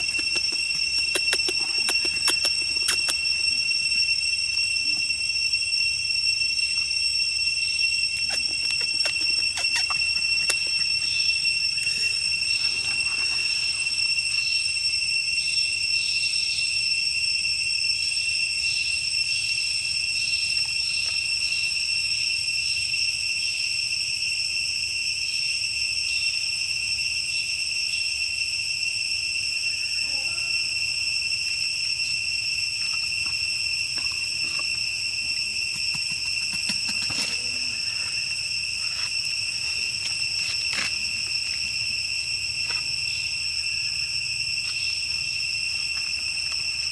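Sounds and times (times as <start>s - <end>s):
high-pitched insect drone: 0.0s - 46.9s.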